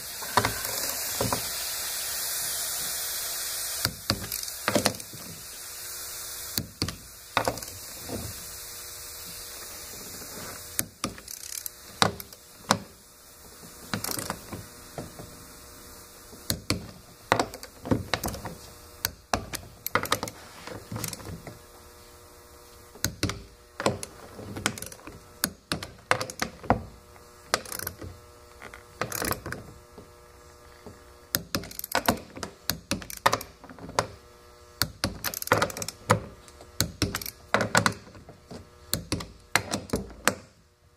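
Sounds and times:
torque wrench ratcheting and clicking: 0.0 - 9.2, 10.7 - 13.0, 13.9 - 15.2, 16.4 - 21.4, 23.0 - 26.7, 27.4 - 29.6, 31.3 - 34.2, 34.8 - 38.1
steady low hum: 0.0 - 40.9.

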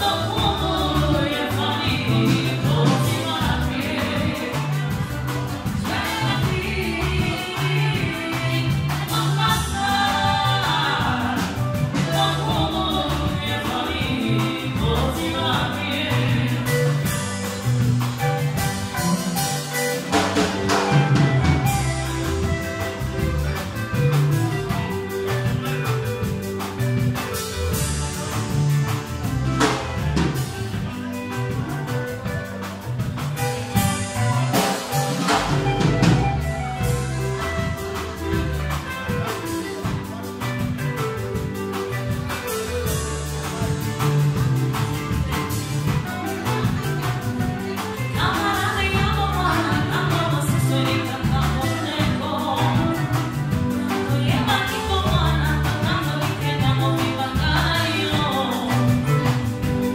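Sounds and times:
woman singing: 0.0 - 23.9, 45.0 - 59.9
bass: 0.0 - 59.9
drum kit beat: 0.0 - 59.9
keyboard: 0.0 - 59.9.

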